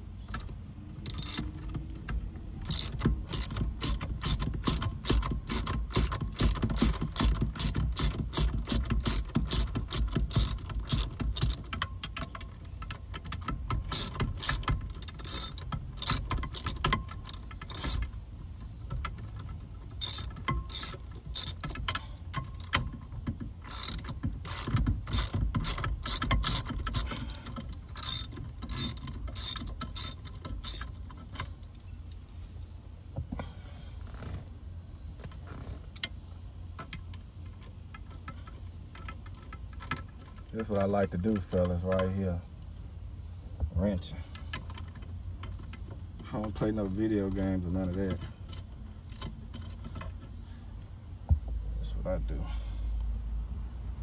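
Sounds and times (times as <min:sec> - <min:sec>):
ratchet wrench clicking: 0:01.0 - 0:01.7, 0:02.6 - 0:18.2, 0:18.9 - 0:31.8.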